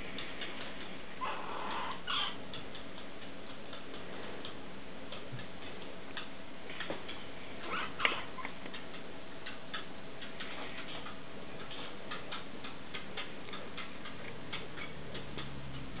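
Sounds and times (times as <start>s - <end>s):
animal suckling clicks: 8.0s - 16.0s.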